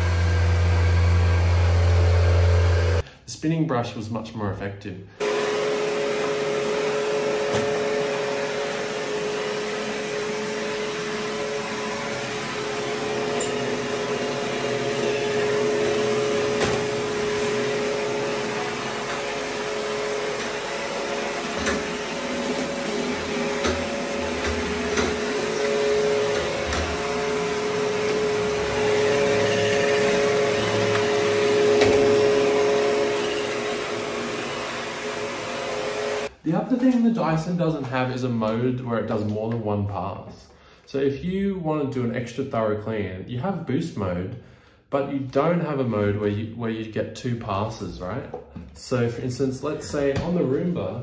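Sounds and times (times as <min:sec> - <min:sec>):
robot vacuum motor hum: 0:05.2 - 0:36.3.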